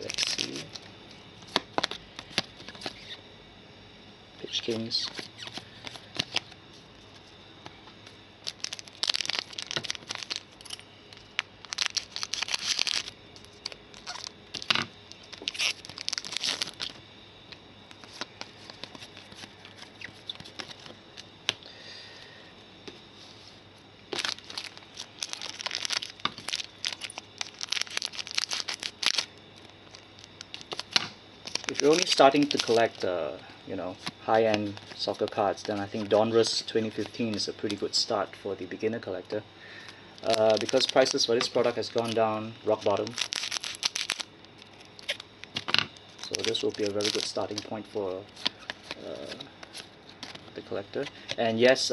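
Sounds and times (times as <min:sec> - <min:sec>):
foil wrappers tearing and crinkling: 0:00.0 - 0:00.8, 0:04.7 - 0:06.6, 0:08.4 - 0:17.0, 0:17.9 - 0:21.0, 0:24.1 - 0:33.1, 0:33.9 - 0:37.8, 0:40.2 - 0:51.9.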